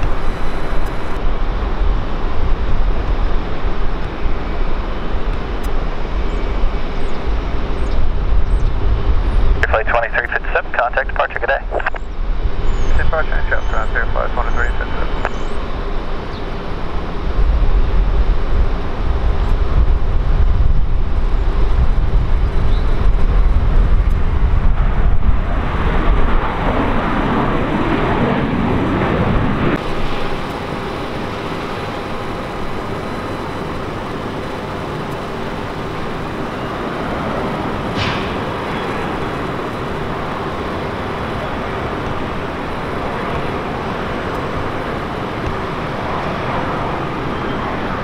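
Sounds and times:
jet engines rumbling: 0.0s - 48.0s
aircraft sweeping whoosh: 12.1s - 48.0s.

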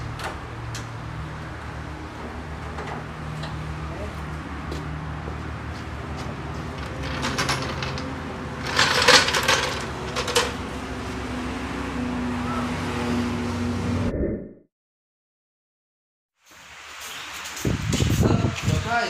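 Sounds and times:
floor jack clanking and rattling: 6.6s - 10.8s.

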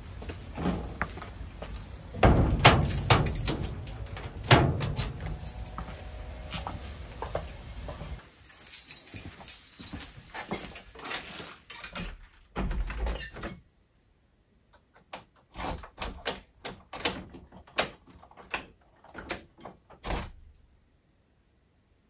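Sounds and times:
door shutting with a thud: 2.1s - 8.2s
clicks and knocks at door lock: 14.8s - 20.4s.

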